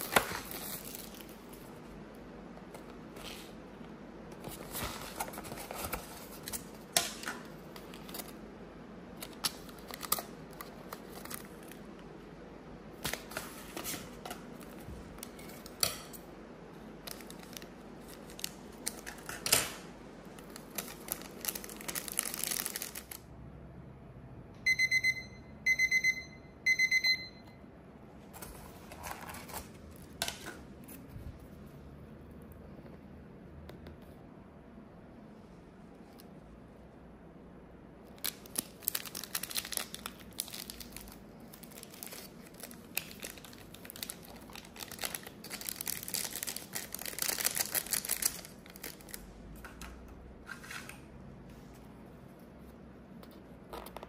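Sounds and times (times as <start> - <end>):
plastic packaging rustling: 0.0 - 2.0, 4.4 - 8.5, 9.1 - 12.0, 17.0 - 23.2, 28.3 - 31.5, 38.1 - 49.4.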